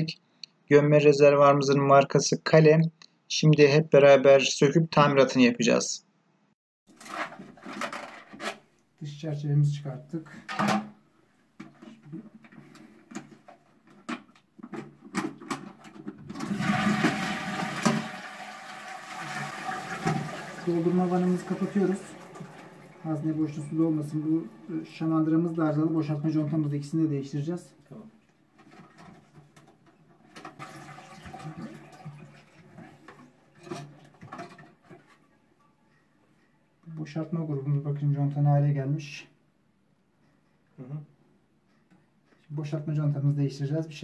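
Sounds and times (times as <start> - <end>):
plastic parts clicking and knocking: 7.5 - 8.6, 11.6 - 16.3
cistern flushing water rush: 16.3 - 27.0, 30.4 - 33.7.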